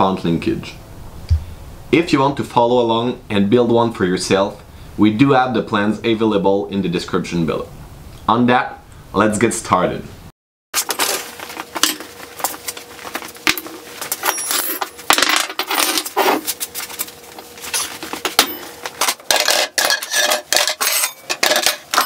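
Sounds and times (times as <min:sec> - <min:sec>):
metal tools clanking: 0:13.5 - 0:16.5, 0:17.4 - 0:22.0.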